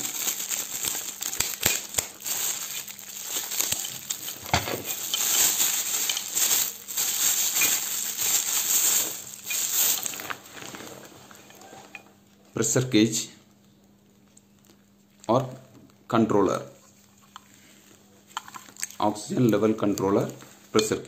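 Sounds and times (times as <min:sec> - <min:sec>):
plastic wrapping crinkling: 0:00.0 - 0:12.0, 0:18.3 - 0:20.5.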